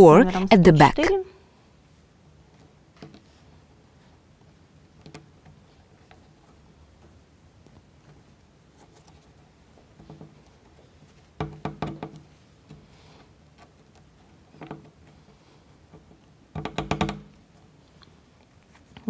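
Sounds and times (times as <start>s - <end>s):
wooden parts clicking together: 9.8s - 18.2s.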